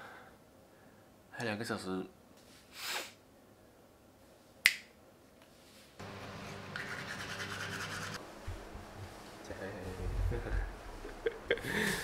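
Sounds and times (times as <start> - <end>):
finger snap: 4.6 - 5.0
steady low hum: 6.0 - 12.0
toothbrush scrubbing teeth: 6.7 - 8.2.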